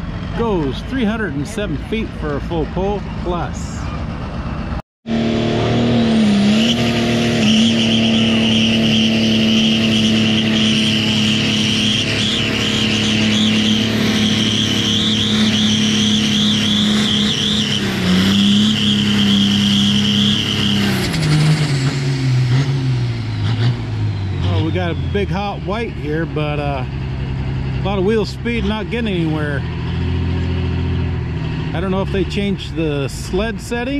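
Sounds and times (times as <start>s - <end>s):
diesel tractor engine at high revs: 0.0s - 33.9s
turbocharger whistle: 5.1s - 26.2s.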